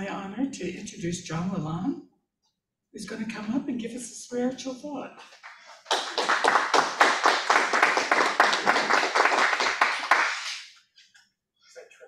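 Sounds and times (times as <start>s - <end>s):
congregation applauding: 5.4s - 10.7s.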